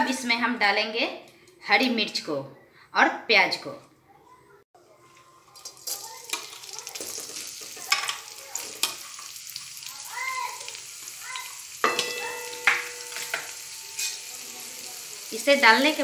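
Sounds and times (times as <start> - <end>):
onions sizzling in hot oil: 5.2 - 16.0
steel plate clinking on pan: 5.7 - 9.0, 11.8 - 14.3.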